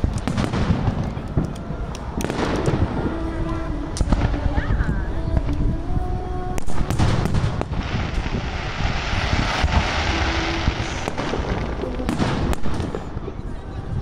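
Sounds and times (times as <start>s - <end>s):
firework shells booming: 0.0s - 1.6s, 6.6s - 13.2s
firework crackling hiss: 1.8s - 13.5s.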